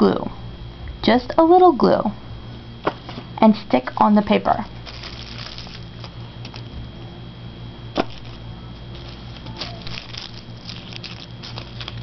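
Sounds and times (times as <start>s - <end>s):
steady low hum: 0.0s - 12.0s
tissue paper crumpling: 4.7s - 6.6s, 8.1s - 12.0s.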